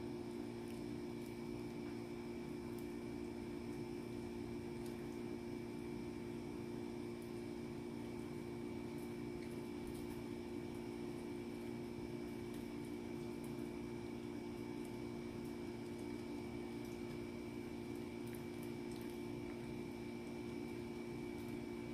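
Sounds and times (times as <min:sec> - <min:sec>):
electrical hum: 0:00.0 - 0:21.9
dog licking and chewing: 0:17.9 - 0:21.6.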